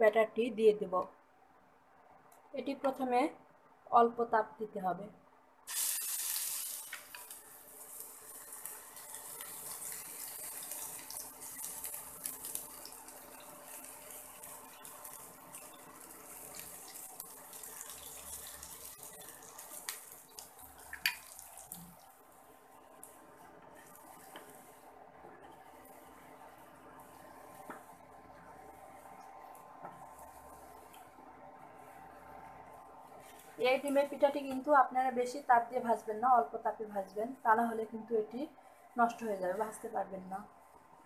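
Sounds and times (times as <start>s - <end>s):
batter sizzling in hot oil: 5.7s - 31.2s.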